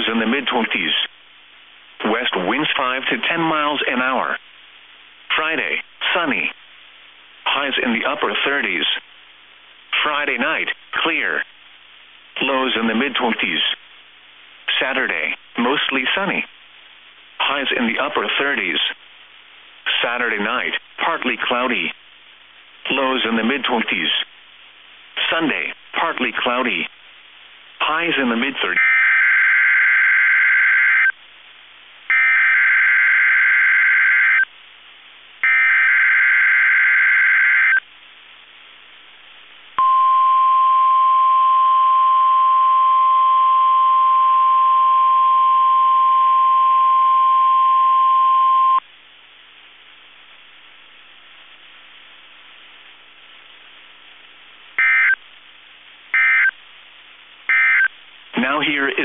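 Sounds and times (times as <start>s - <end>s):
radio hiss: 0.0s - 28.9s, 48.8s - 59.0s
weather radio alarm tone: 28.8s - 31.2s, 32.1s - 34.5s, 35.4s - 37.8s, 39.8s - 48.8s, 54.8s - 55.2s, 56.2s - 56.5s, 57.5s - 57.9s.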